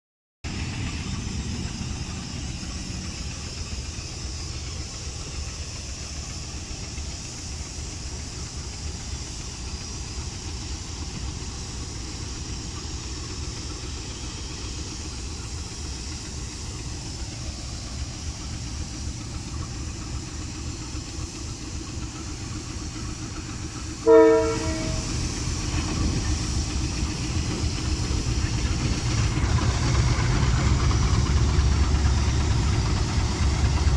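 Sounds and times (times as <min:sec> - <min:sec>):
diesel locomotives idling: 0:00.5 - 0:33.9
locomotive horn blast: 0:24.0 - 0:25.2.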